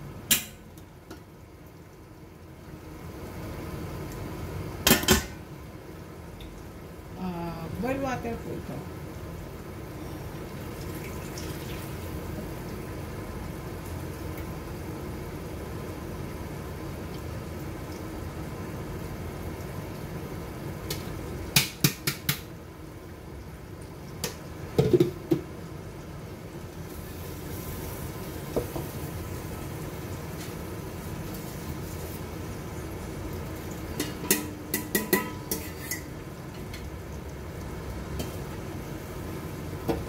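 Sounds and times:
kitchen background noise: 0.0s - 5.6s, 6.3s - 14.7s, 20.7s - 22.6s, 23.2s - 26.0s, 26.6s - 40.0s
curry simmering in a pot: 0.0s - 40.0s
utensils knocking on cookware: 34.0s - 36.1s.

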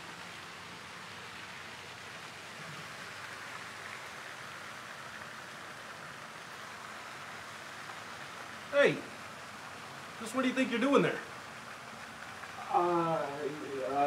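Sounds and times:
steady background hiss: 0.0s - 14.0s.

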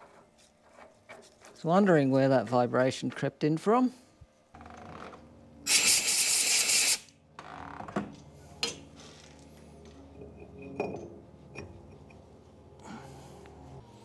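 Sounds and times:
loud air hiss: 5.7s - 7.1s.

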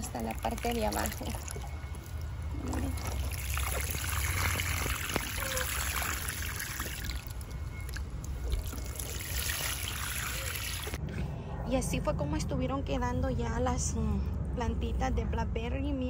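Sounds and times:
watering can splashing on soil: 0.0s - 11.0s.

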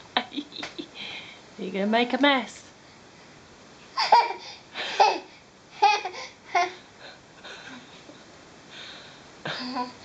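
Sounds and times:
baby laughing: 4.0s - 6.8s.

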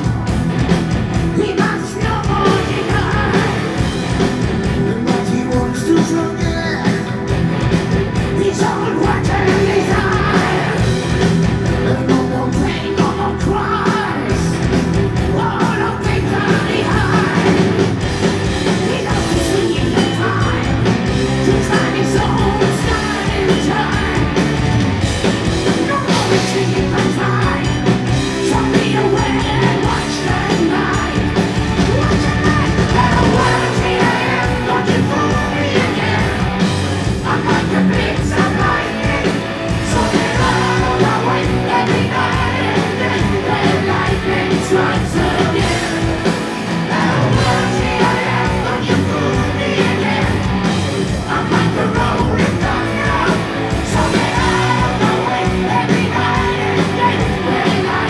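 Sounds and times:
heavy metal band playing live: 0.0s - 58.0s
man singing: 1.3s - 3.8s, 4.6s - 7.3s, 8.3s - 10.8s, 11.6s - 17.7s, 18.7s - 24.4s, 25.7s - 36.5s, 37.1s - 50.4s, 51.1s - 58.0s
shouted vocals: 28.4s - 36.6s.

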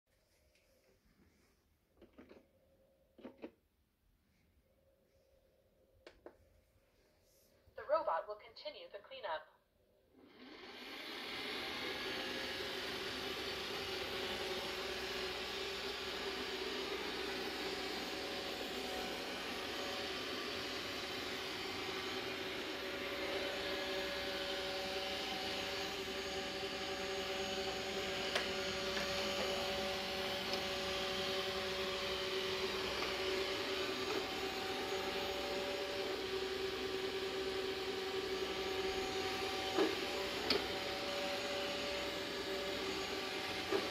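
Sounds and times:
robot vacuum fan whining: 10.2s - 43.9s.

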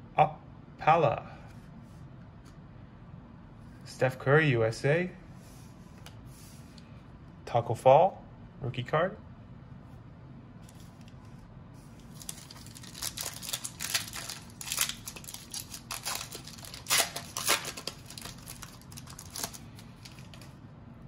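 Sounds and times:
plastic card sleeve crinkling: 10.6s - 20.6s.

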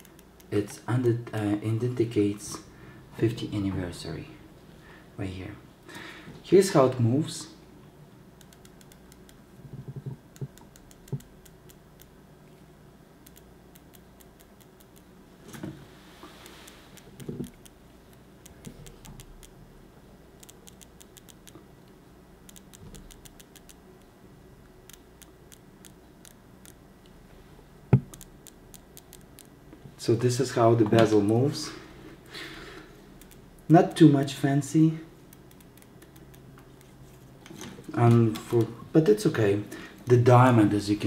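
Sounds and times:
watch bezel ratcheting clicks: 20.4s - 21.6s, 22.5s - 23.8s.

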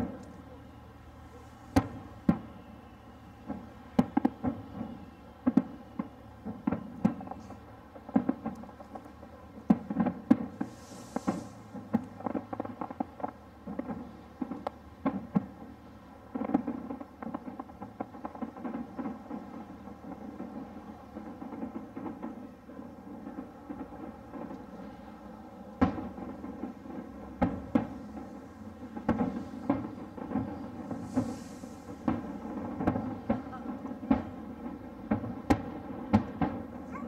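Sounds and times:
fireworks bangs and pops: 0.0s - 37.0s
firework hiss: 1.2s - 2.8s, 9.8s - 14.6s, 15.5s - 37.0s.

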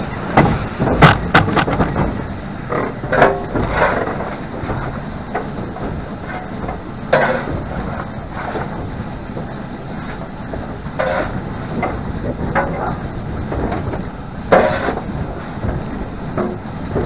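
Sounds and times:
train rumbling over rails: 0.0s - 17.0s
sharp knocks: 0.3s - 9.6s.

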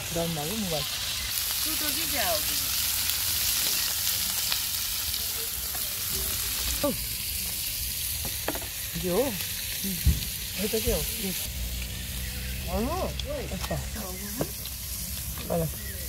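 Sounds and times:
meat sizzling on griddle: 0.0s - 16.0s
faint voices: 3.6s - 8.1s.

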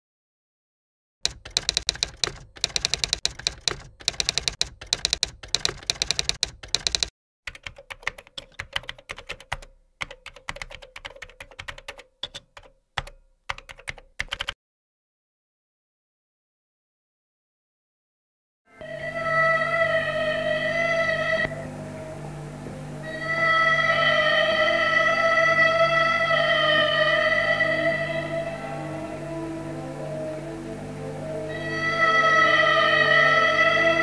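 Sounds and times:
typewriter key clacks: 1.3s - 14.6s.

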